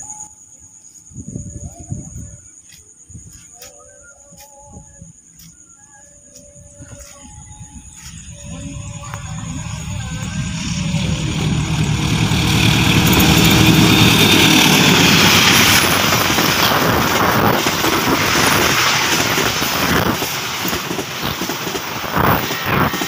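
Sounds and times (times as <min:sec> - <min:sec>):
diesel locomotive engine: 0:07.0 - 0:23.0
train coaches rumbling past: 0:07.0 - 0:23.0
wheels knocking on rails: 0:08.9 - 0:23.0.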